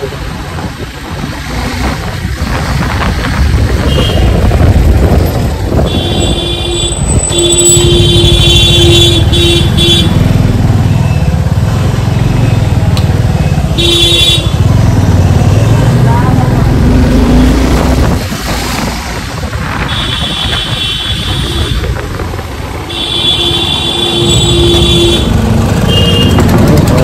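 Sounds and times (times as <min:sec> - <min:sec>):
road traffic: 0:00.0 - 0:27.0
vehicle horn honking: 0:05.8 - 0:10.2, 0:13.8 - 0:14.6, 0:22.9 - 0:26.6.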